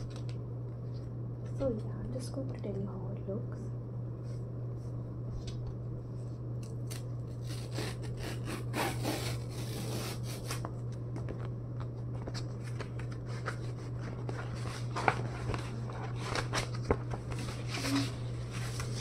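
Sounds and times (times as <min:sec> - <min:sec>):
steady low hum: 0:00.0 - 0:19.0
paper envelope rustling: 0:12.1 - 0:19.0.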